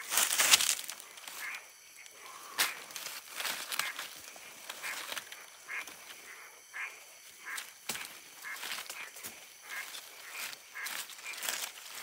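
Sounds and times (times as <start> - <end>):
dry leaves rustling: 0.0 - 1.6, 2.6 - 5.9, 7.4 - 12.0.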